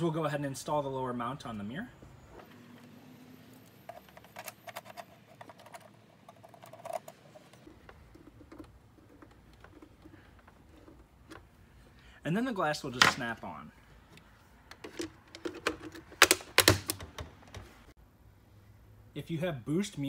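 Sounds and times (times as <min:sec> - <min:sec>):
faint handling sounds: 0:02.3 - 0:12.1
screwdriver clicking and scraping: 0:03.8 - 0:11.5.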